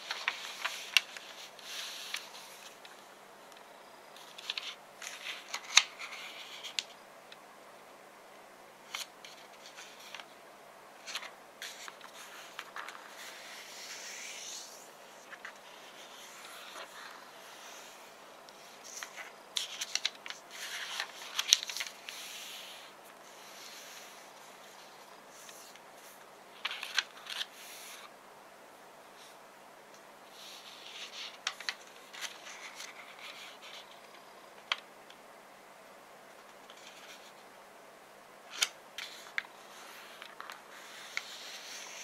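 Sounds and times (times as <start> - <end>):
paper crinkling and rustling: 0.0 - 3.0, 4.2 - 7.0, 11.0 - 28.1, 30.4 - 34.8, 38.5 - 42.0
sharp paper clicks: 18.5 - 22.3, 38.5 - 42.0.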